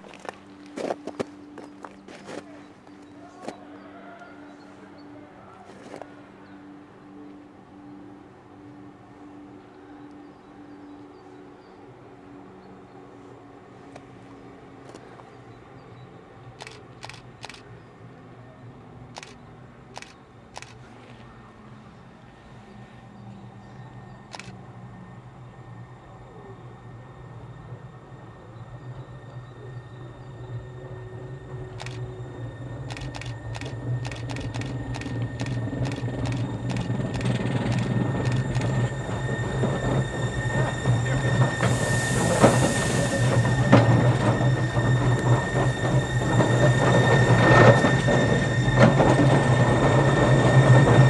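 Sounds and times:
electric railcar humming: 0.0 - 51.0
sharp clicks: 32.9 - 38.7.

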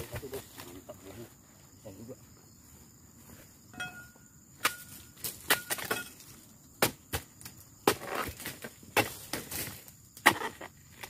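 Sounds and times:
chisel chopping palm fronds: 4.6 - 11.0.

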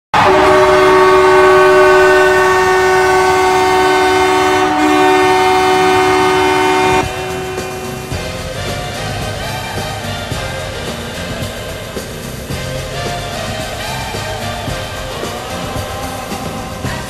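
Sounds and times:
goal horn chord: 0.2 - 11.3
music: 1.8 - 17.0.

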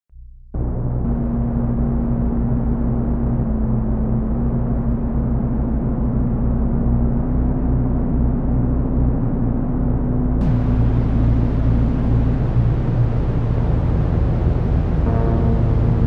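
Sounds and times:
low synthesizer drone: 0.6 - 16.0.

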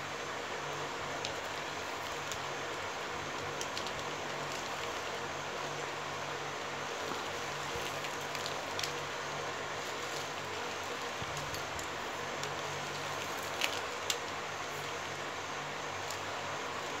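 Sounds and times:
steady hiss: 0.0 - 17.0
plastic wire clicks and rustles: 3.3 - 5.2, 7.0 - 9.1, 9.8 - 15.0.

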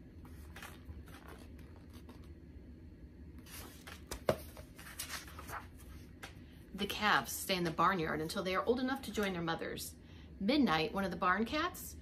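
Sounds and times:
book pages rustling and turning: 0.1 - 2.4, 3.4 - 6.4.

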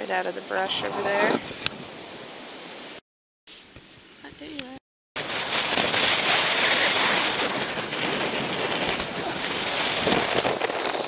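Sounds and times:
strong wind on microphone: 0.0 - 2.6, 5.2 - 11.0.

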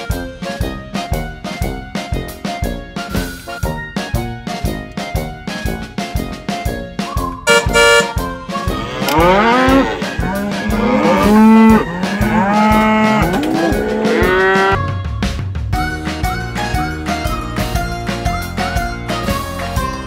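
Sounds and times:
music: 0.0 - 20.0
cow mooing: 9.1 - 14.8.

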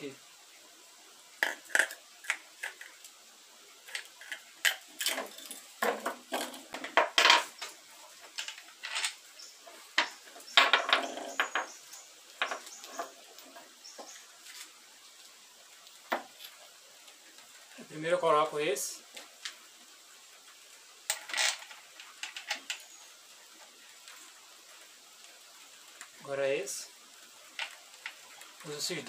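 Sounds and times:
metal scraping on wood: 3.9 - 14.7.

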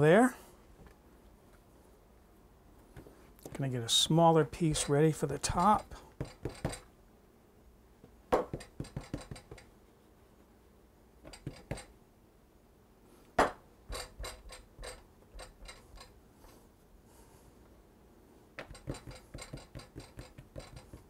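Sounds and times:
hands patting dough on wood: 18.6 - 21.0.

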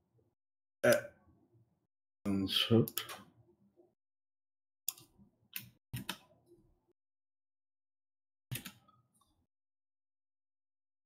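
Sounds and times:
mouse and keyboard clicks: 4.9 - 6.3, 8.5 - 8.9.

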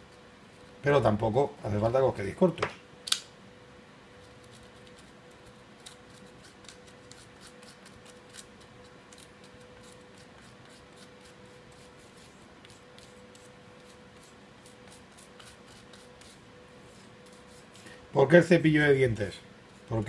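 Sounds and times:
toothbrush scratching metal: 4.2 - 17.9.

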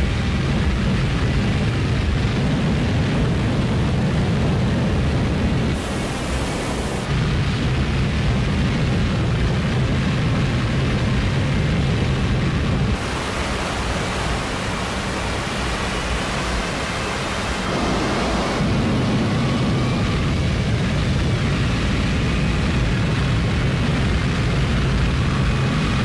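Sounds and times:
electronic noise drone music: 5.7 - 7.8, 12.0 - 26.0
high hiss: 5.8 - 7.1, 13.0 - 19.7.

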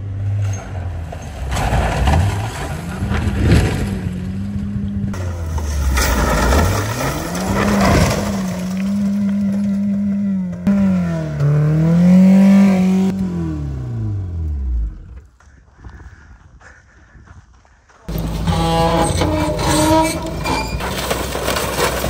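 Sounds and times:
car engine at high revs: 1.6 - 15.2.

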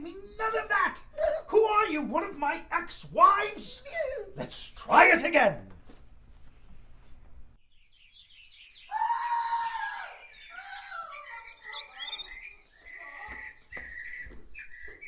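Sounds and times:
birds chirping: 7.6 - 15.0
woman screaming: 8.9 - 11.4.

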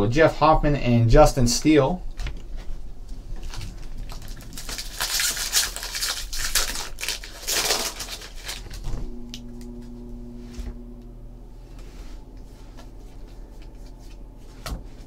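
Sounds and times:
low steady hum: 0.0 - 15.0
cards rustling: 3.4 - 8.8
foil wrapper tearing: 3.4 - 8.9.

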